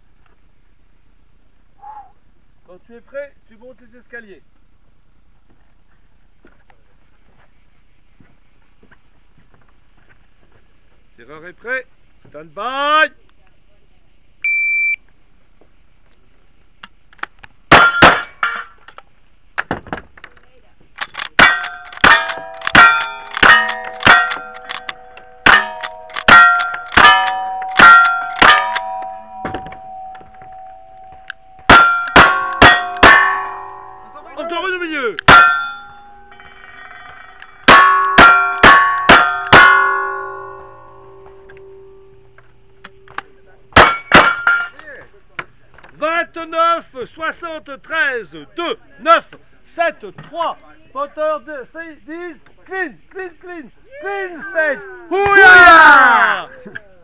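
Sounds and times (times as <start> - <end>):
shot timer beep: 14.5 - 15.0
steel targets clanging: 17.7 - 18.8, 21.4 - 44.9
gunshots: 21.4 - 29.6.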